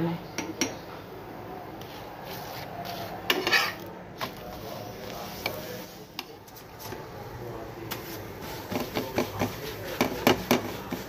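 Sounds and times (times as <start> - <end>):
metal spatula scraping pan: 3.2 - 3.9.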